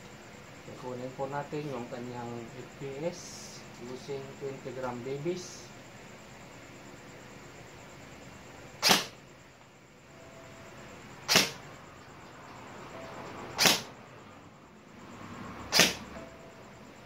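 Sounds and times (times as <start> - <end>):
airsoft rifle shots: 8.8 - 9.2, 11.3 - 11.6, 13.6 - 13.9, 15.7 - 16.0.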